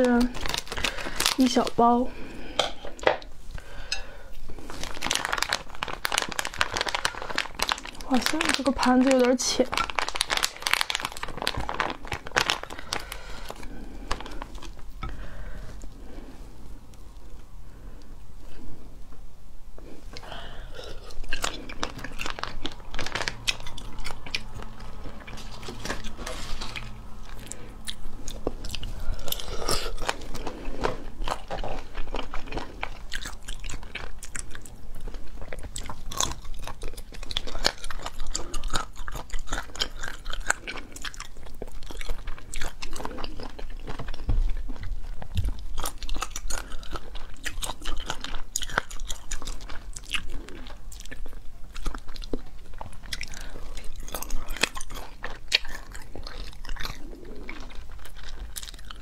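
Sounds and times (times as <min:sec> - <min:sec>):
chewing and biting: 0:20.2 - 0:59.0
crunching: 0:20.2 - 0:59.0.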